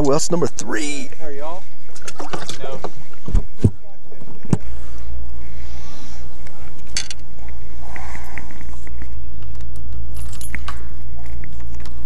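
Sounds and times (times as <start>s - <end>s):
steady low rumble: 0.0s - 12.0s
fishing tackle clicking and clinking: 6.9s - 7.3s.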